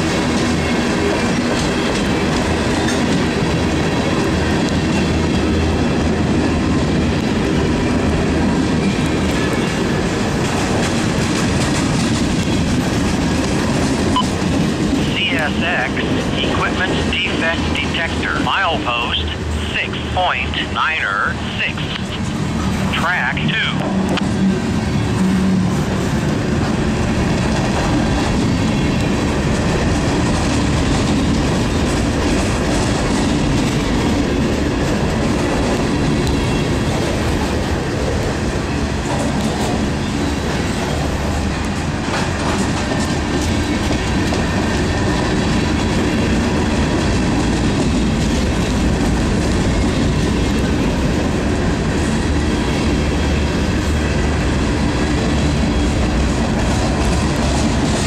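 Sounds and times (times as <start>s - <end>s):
train wheels rumbling on rails: 0.0s - 58.0s.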